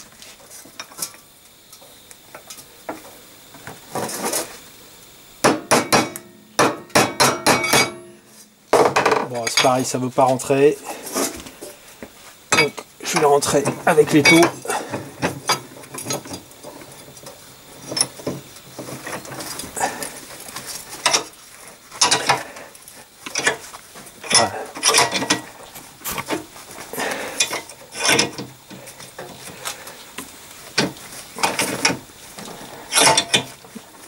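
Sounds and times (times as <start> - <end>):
vice screw clicking and creaking: 27.4 - 28.5.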